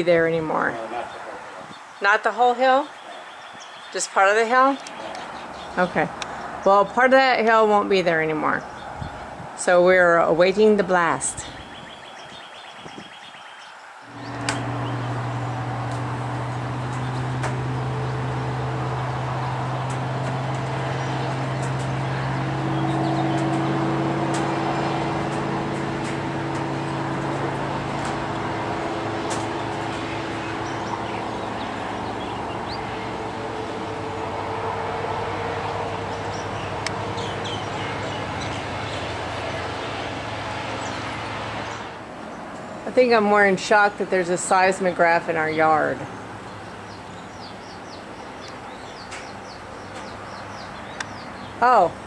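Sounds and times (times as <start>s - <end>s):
drilling rig engine humming: 14.1s - 52.0s
higher engine tone: 14.1s - 52.0s.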